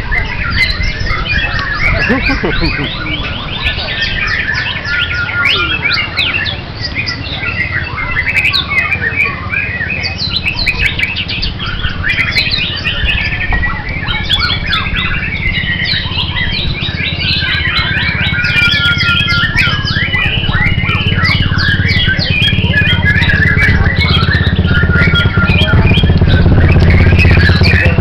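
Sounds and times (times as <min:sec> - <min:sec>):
songbirds singing: 0:00.0 - 0:28.0
steady low rumble: 0:10.2 - 0:28.0.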